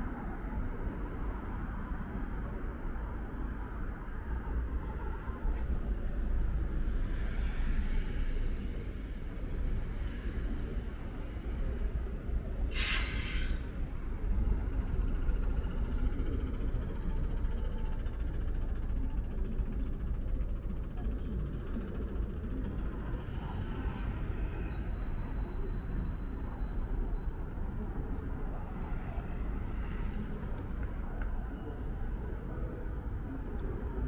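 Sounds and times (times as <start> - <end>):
bus engine idling: 3.6 - 34.0
compressed air hiss: 12.7 - 13.6.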